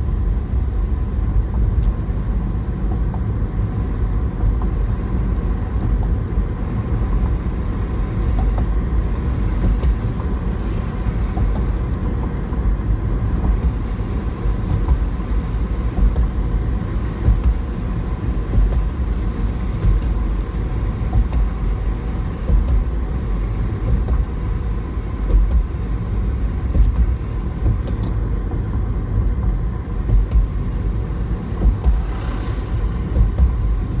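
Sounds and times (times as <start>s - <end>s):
car engine: 0.0s - 34.0s
car interior road noise: 0.0s - 34.0s.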